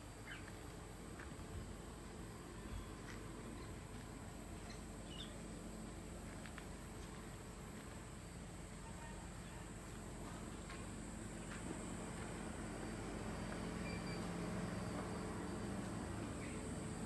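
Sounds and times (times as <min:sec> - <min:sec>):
insects chirring: 0:00.0 - 0:17.0
short insect chirp: 0:00.2 - 0:00.5, 0:12.5 - 0:17.0.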